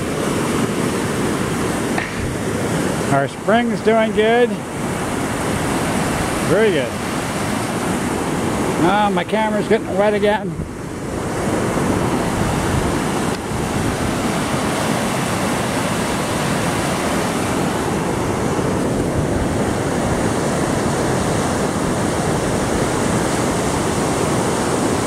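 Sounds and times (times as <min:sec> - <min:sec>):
river rushing over rapids: 0:00.0 - 0:25.0.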